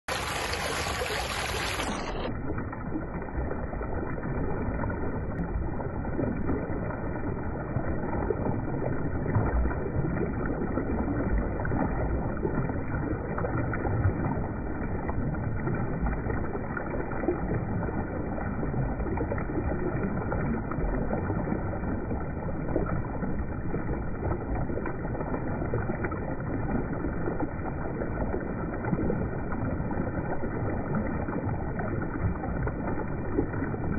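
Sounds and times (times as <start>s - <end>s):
river water rushing: 0.1s - 2.2s
fish splashing: 0.1s - 2.4s.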